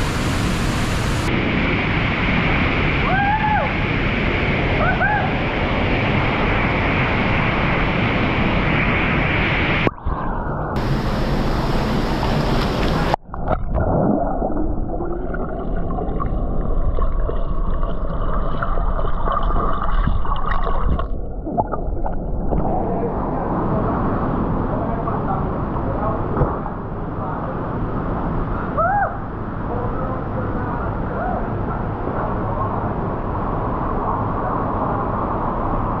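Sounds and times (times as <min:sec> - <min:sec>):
rushing river water: 0:10.8 - 0:13.2.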